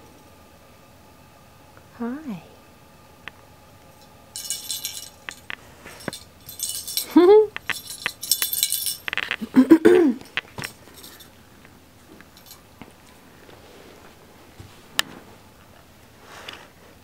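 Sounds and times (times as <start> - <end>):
jingle bell on cat toy: 4.4 - 9.1, 12.4 - 12.6.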